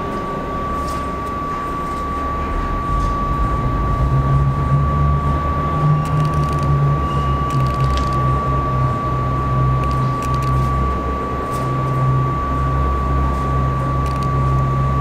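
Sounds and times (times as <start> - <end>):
subway train rumbling: 0.0 - 9.9
steady high whine: 0.0 - 15.0.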